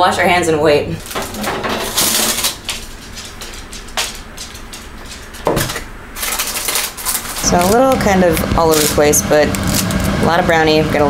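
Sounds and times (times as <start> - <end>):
metal pan scraping and clattering: 1.1 - 2.6.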